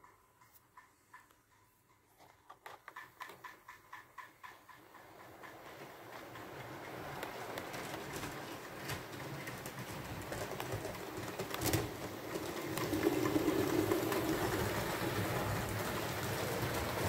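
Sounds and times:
wheels rumbling on track: 3.8 - 17.0
model train motors humming: 4.9 - 17.0.

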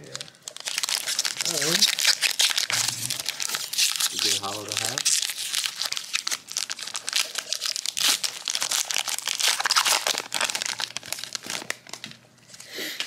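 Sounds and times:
foil wrapper tearing and crinkling: 0.1 - 12.1.

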